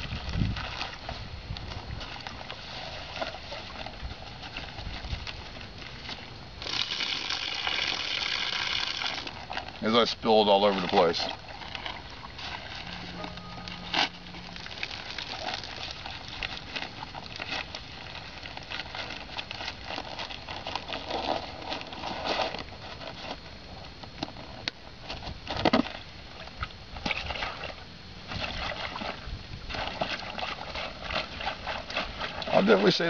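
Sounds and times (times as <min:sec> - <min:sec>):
dry sack crinkling and rustling: 0:10.7 - 0:26.1.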